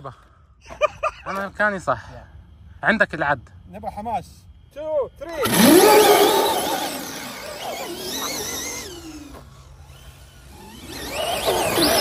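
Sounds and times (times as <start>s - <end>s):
electric motors whining: 5.3s - 12.0s.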